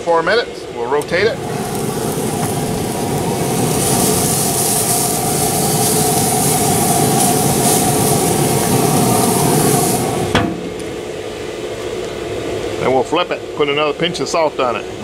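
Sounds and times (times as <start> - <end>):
grill mechanical hum: 0.0 - 15.0
steak sizzling on grill: 1.0 - 11.1
grill lid clunk: 7.1 - 11.1.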